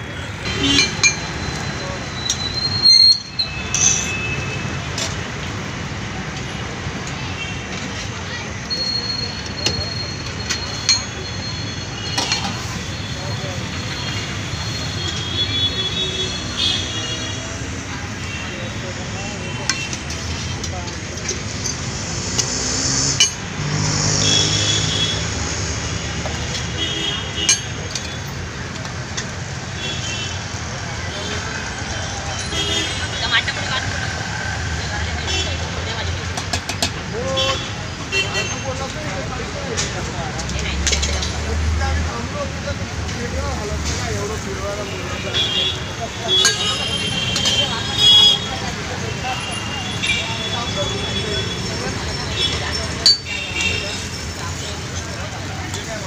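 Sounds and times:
indistinct voices: 0:00.0 - 0:56.0
rumbling street noise: 0:00.0 - 0:56.0
traffic noise: 0:00.0 - 0:56.0
sharp clinks: 0:02.2 - 0:04.3.

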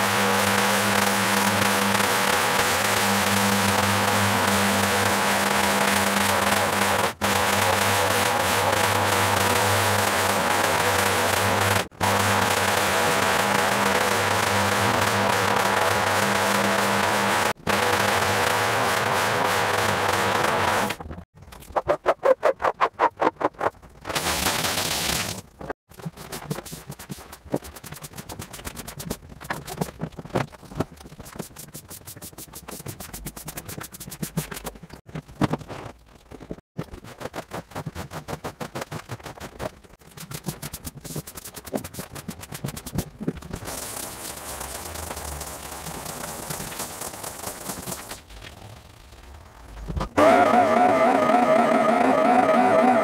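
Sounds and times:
tools scrubbing rug: 0:31.2 - 0:34.8.

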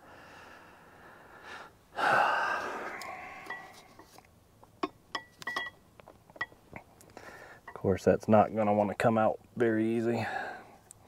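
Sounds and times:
heavy breath of effort: 0:00.0 - 0:04.0, 0:07.1 - 0:07.7, 0:10.2 - 0:10.8
ratchet clinking on metal: 0:04.8 - 0:05.8.

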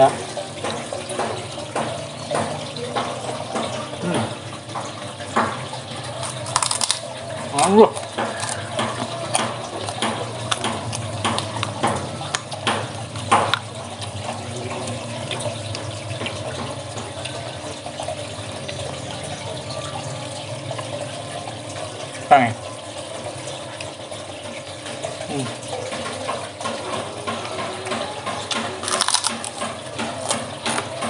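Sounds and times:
wet chewing and sucking: 0:06.2 - 0:07.1, 0:07.7 - 0:12.5, 0:28.5 - 0:30.9.

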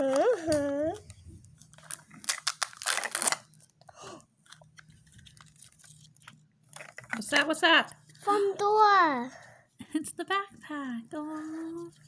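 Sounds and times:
plastic packaging crackling: 0:00.0 - 0:03.8, 0:04.4 - 0:07.9.

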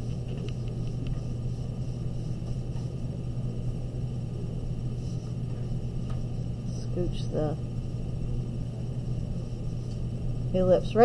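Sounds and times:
low hum of room noise: 0:00.0 - 0:11.0.

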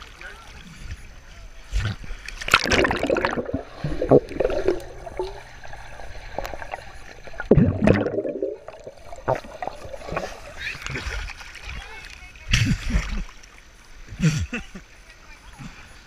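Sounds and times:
muffled underwater water noise: 0:00.0 - 0:16.0
surge of water: 0:00.0 - 0:16.0
loud water splash: 0:02.4 - 0:05.4.

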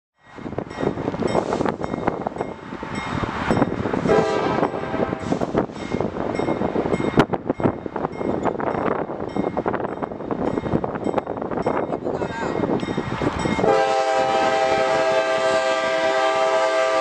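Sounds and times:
diesel locomotive engines running: 0:00.3 - 0:17.0
train horn: 0:04.0 - 0:05.5, 0:13.6 - 0:17.0.

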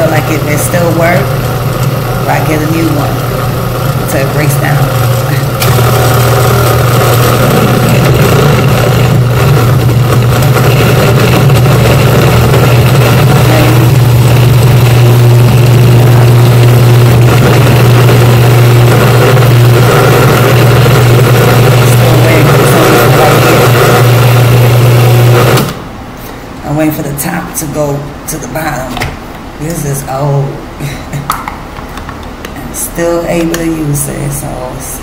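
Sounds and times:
blender motor running: 0:00.0 - 0:25.9.

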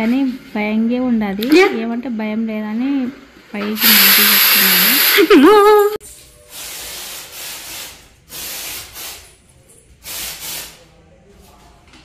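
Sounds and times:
aerosol spray can hissing: 0:03.8 - 0:05.4, 0:06.5 - 0:09.3, 0:10.0 - 0:10.8.

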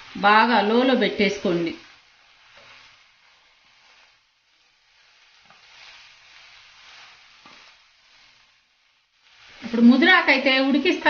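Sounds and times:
food sizzling in pan: 0:00.0 - 0:11.0.

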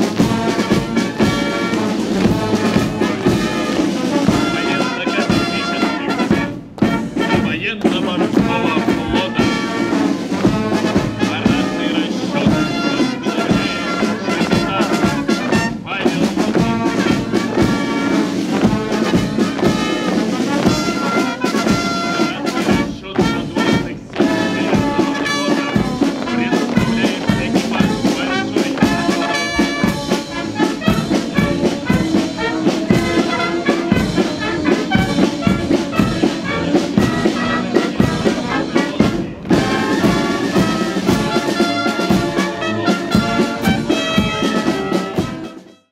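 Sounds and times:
brass band playing a march: 0:00.0 - 0:45.9.

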